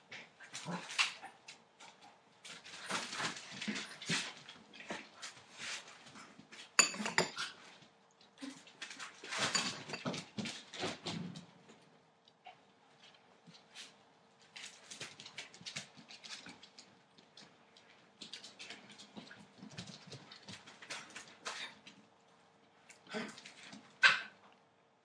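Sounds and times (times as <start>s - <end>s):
puppies scampering on newspaper: 0.7s - 6.8s, 13.0s - 22.0s
metal food bowls clattering: 9.3s - 10.3s.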